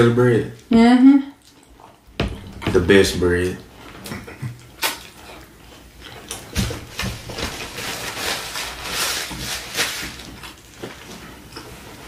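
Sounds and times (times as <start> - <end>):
wet chewing: 1.4 - 2.2, 3.4 - 7.1
paper napkin rustling: 6.8 - 11.2.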